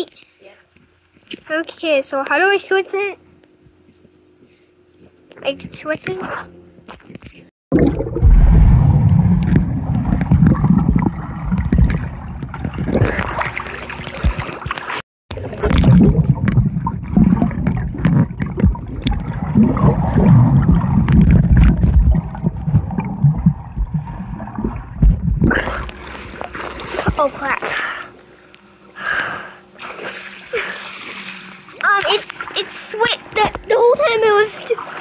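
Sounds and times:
underwater churning water and bubbles: 7.7 - 28.4.

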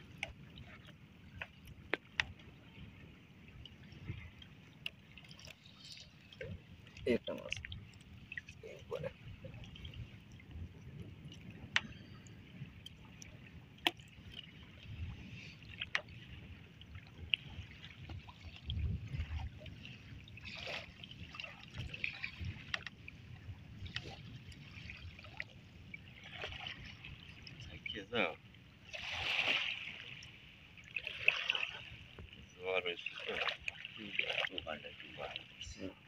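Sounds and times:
water lapping against boat: 0.0 - 36.0
wind buffeting microphone: 6.4 - 28.1.

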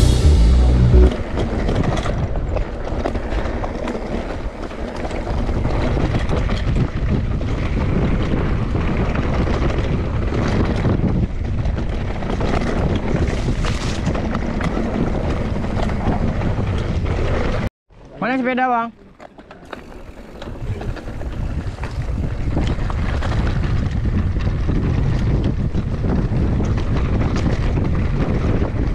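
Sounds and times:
bike tyre noise: 0.0 - 17.7, 19.2 - 28.9
bike rattles and clicks: 1.2 - 28.9
wind buffeting microphone: 4.3 - 17.7, 20.0 - 28.9.

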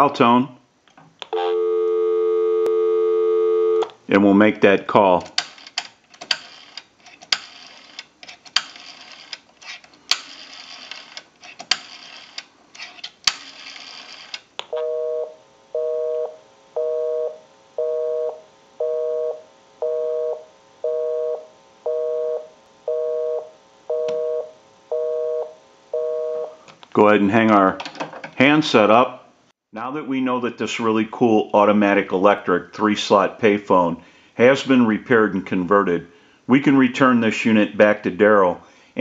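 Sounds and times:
two-tone busy signal beep: 1.4 - 3.8.

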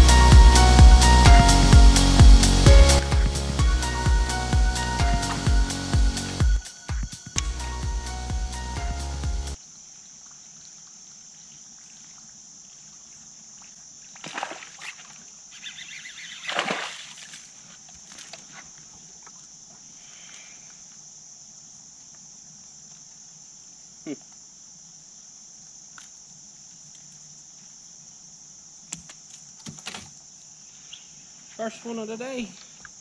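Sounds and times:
high-pitched insect chorus: 0.0 - 33.0
fish splashing in water: 13.6 - 17.5.

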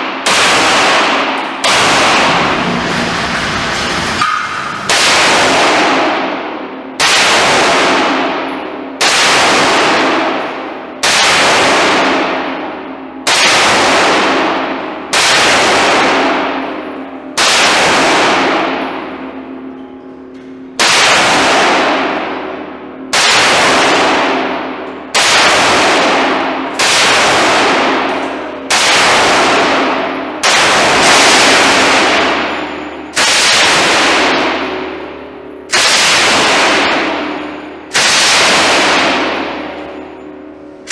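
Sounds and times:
machine gun firing: 0.0 - 19.3, 20.8 - 40.9
rifle single shots: 0.2 - 2.7, 23.1 - 34.8, 35.7 - 40.0.

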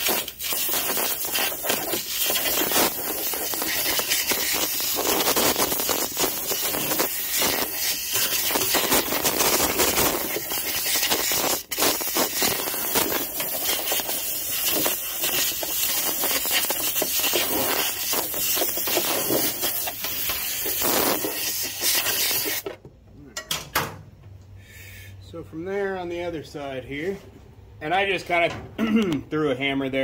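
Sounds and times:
air blow gun hissing: 0.0 - 22.6.

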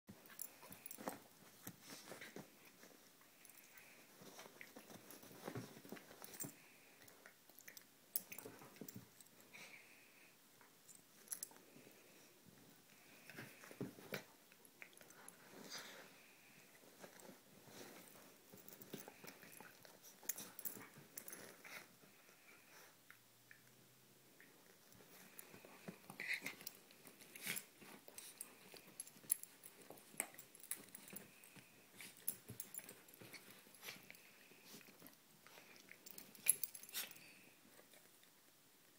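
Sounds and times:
soft clicks and rustles: 0.1 - 38.9.

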